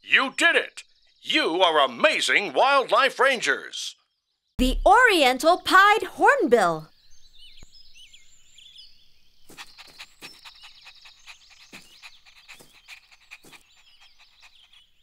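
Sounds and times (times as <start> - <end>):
high bird chirps: 6.9 - 15.0.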